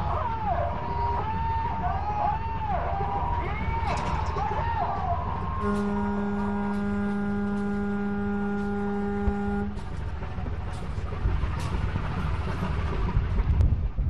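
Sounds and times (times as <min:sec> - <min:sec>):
steady low rumble: 0:00.0 - 0:14.0
horn blast: 0:05.5 - 0:10.0.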